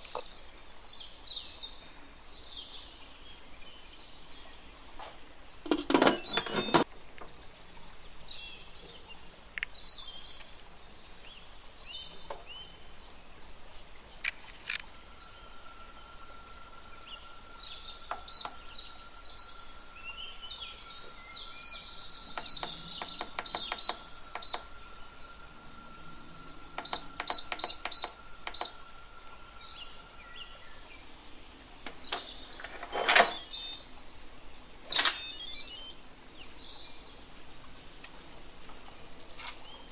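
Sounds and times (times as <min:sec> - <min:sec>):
control panel beeps: 0:18.1 - 0:18.6, 0:22.4 - 0:24.7, 0:26.8 - 0:28.8, 0:32.9 - 0:33.8, 0:34.9 - 0:36.0.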